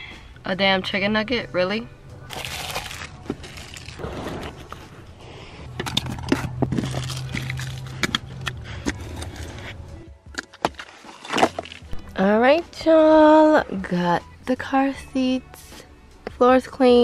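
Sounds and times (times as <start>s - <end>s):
scraping and crinkling of items: 2.3s - 5.0s, 5.7s - 9.8s, 10.6s - 12.0s.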